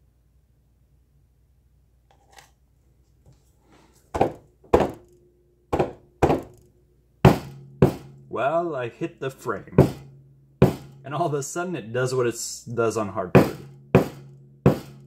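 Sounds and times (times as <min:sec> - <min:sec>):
hammer thunking on canvas: 0:04.2 - 0:05.0, 0:05.7 - 0:06.6, 0:07.3 - 0:08.1, 0:09.8 - 0:10.0, 0:10.6 - 0:11.0, 0:13.4 - 0:15.0
hammer hitting wooden frame: 0:04.2 - 0:05.1, 0:05.7 - 0:06.6, 0:07.2 - 0:08.2, 0:09.8 - 0:11.0, 0:13.4 - 0:15.0.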